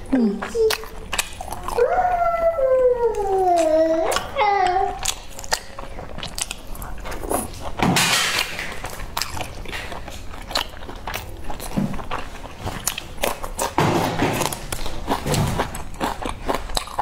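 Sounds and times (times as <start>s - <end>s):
wet chewing and smacking: 0.2s - 17.0s.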